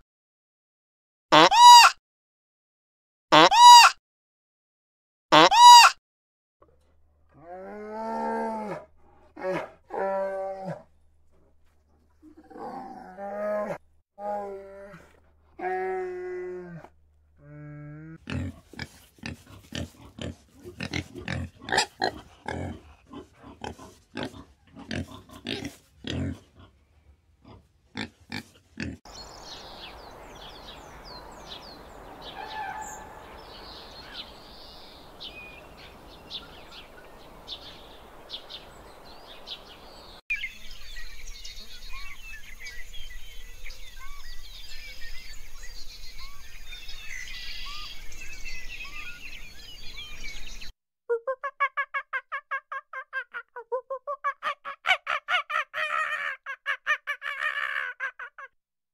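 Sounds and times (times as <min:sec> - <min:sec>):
steady outdoor hiss: 0:29.1 - 0:50.7
gruff animal calls: 0:54.2 - 0:58.5.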